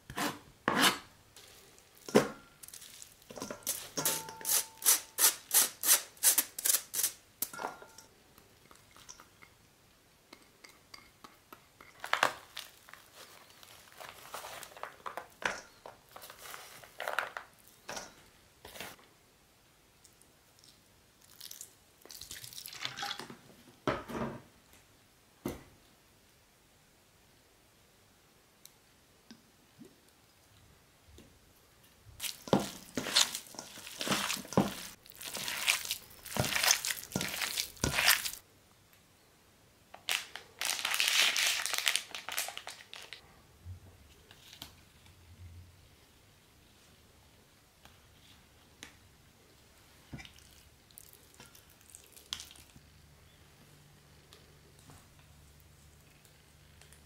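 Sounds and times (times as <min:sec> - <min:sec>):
soft drips and trickles: 0:20.0 - 0:23.3, 0:50.1 - 0:53.0
plastic packet crinkling: 0:32.2 - 0:38.4, 0:40.0 - 0:43.2.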